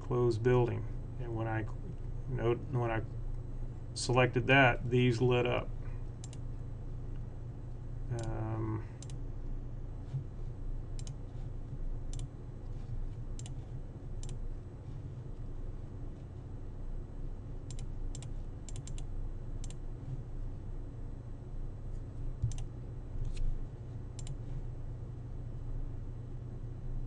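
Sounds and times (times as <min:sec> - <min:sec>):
steady low hum: 0:00.0 - 0:27.0
computer mouse clicks: 0:06.2 - 0:06.4, 0:11.0 - 0:11.2, 0:12.1 - 0:12.3, 0:13.4 - 0:13.6, 0:14.2 - 0:14.4, 0:17.7 - 0:19.8, 0:22.4 - 0:23.4, 0:24.2 - 0:24.4.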